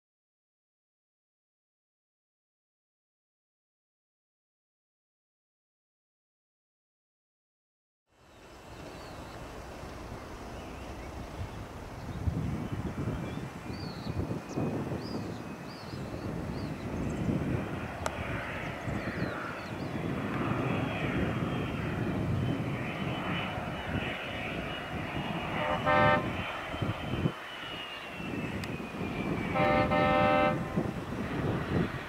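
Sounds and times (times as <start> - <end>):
jet engine whine: 8.4 - 32.0
horn sounding: 25.6 - 26.4, 29.5 - 30.9.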